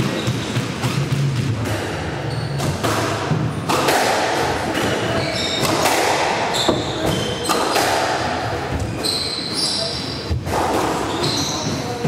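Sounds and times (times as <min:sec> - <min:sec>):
sneaker squeaks on wooden floor: 0:00.0 - 0:00.7, 0:02.2 - 0:02.8, 0:04.7 - 0:08.0, 0:08.6 - 0:12.0
squash ball knocks: 0:02.6 - 0:08.4.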